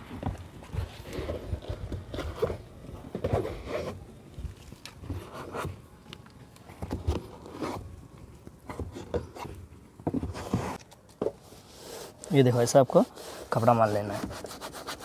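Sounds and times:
cloth wiping plastic panel: 11.6 - 15.0.

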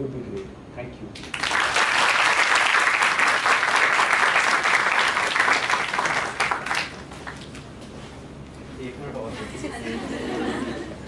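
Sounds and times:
audience applauding: 1.2 - 7.6.

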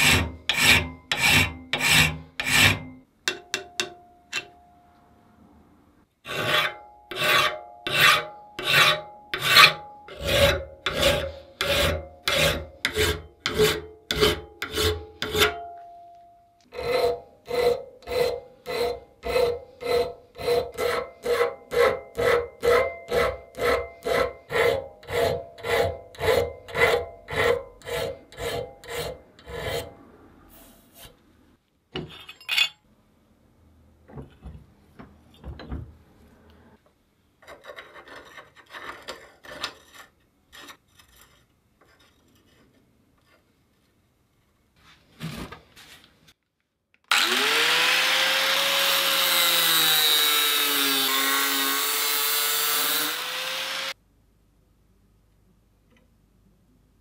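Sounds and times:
hand file on steel: 0.0 - 2.9, 6.3 - 15.6, 16.7 - 30.0, 47.1 - 54.0.

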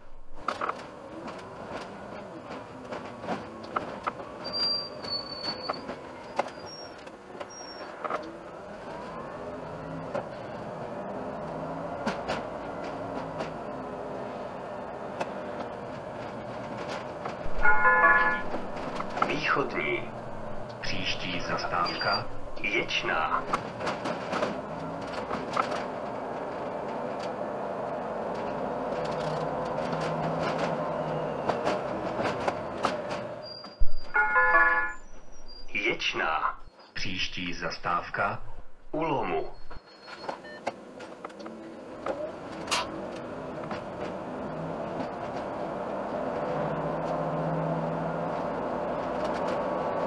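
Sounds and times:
bus driving from inside: 0.0 - 50.0
rattles and clicks: 15.2 - 30.9.

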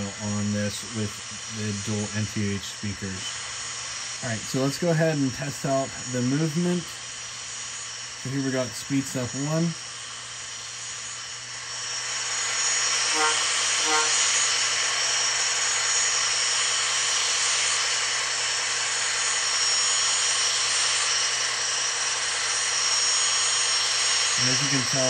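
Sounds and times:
turbine whine and hiss: 0.0 - 25.0
short beeps: 13.2 - 14.2.

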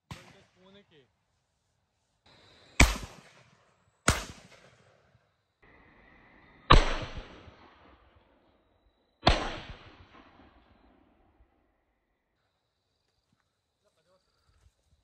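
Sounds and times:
shotgun shots with echo: 0.0 - 0.6, 2.8 - 5.0, 6.7 - 8.2, 9.2 - 10.8.

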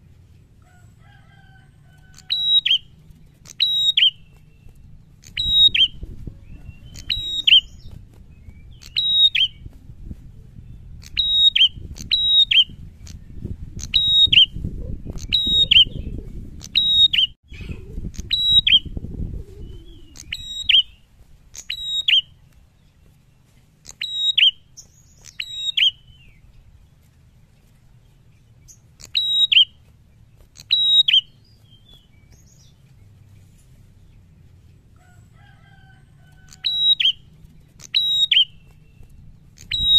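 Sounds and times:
songbird double-note calls: 2.1 - 2.9, 29.0 - 29.8, 30.6 - 31.9, 36.3 - 38.8, 39.6 - 39.9.

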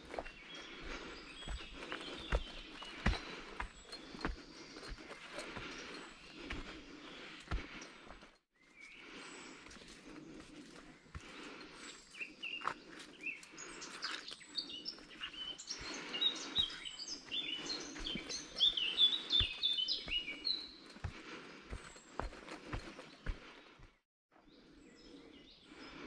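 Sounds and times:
footsteps crunching: 0.0 - 8.4, 9.6 - 24.0
songbirds chirping: 0.0 - 26.0.

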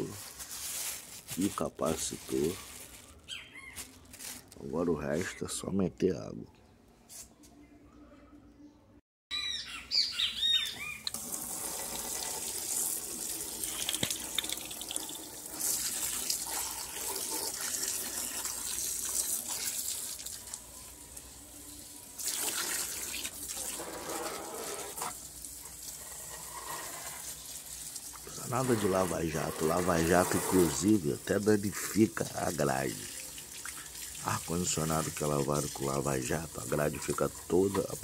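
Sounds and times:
hose water spraying and splashing: 0.0 - 3.0, 11.1 - 38.0.

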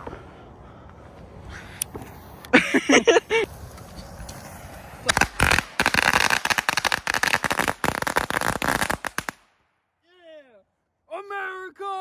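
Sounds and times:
firecrackers cracking: 3.4 - 9.5.

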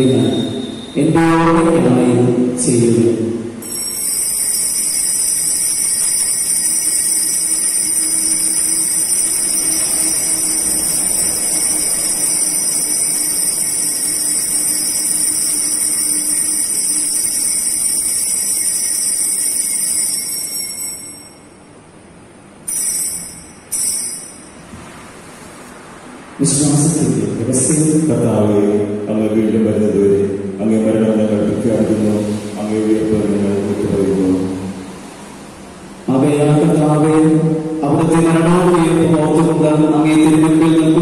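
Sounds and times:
altar bell ringing: 2.7 - 24.8.

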